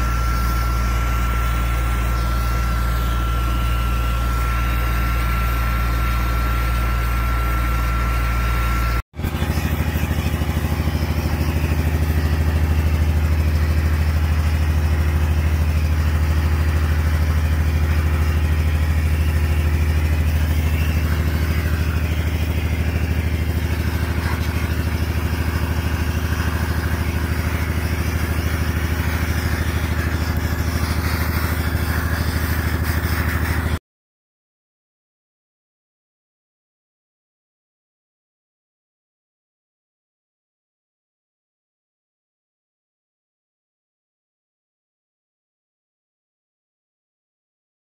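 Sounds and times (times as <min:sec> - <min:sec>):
air compressor engine drone: 0:00.0 - 0:33.8.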